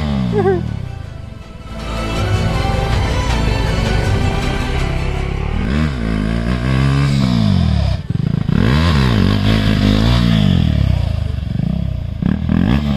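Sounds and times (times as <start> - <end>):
motorcycle engine revving: 2.9 - 12.9.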